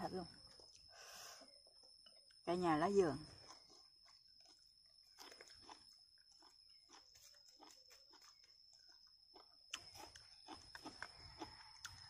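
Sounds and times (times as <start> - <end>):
person chewing food: 3.4 - 12.0.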